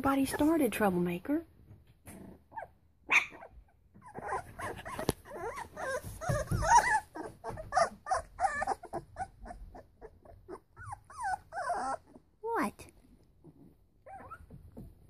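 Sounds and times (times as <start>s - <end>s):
puppies whimpering and yipping: 2.5s - 12.4s, 14.0s - 14.9s.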